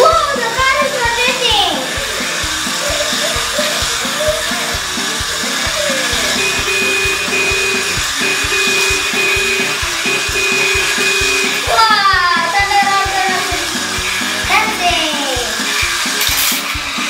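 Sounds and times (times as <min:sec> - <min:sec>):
toy robot motor whirring: 0:00.0 - 0:17.0
electronic music with beat: 0:02.0 - 0:14.6
beeping tones: 0:05.8 - 0:12.7.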